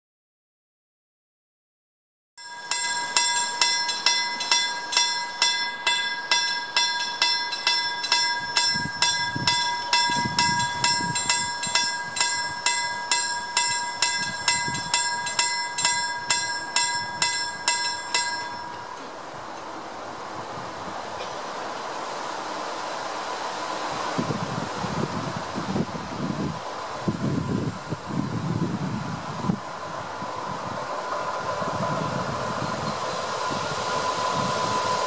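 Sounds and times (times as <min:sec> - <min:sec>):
level crossing warning bell: 0:02.4 - 0:19.7, 0:27.0 - 0:35.0.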